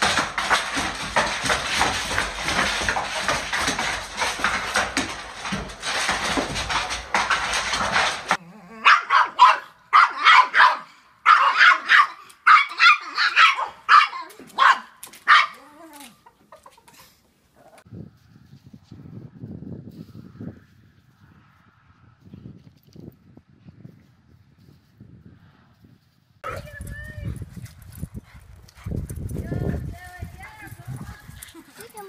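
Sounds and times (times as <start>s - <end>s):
claws clattering on hardwood floor: 0.0s - 8.4s
small dog barking: 8.8s - 15.6s.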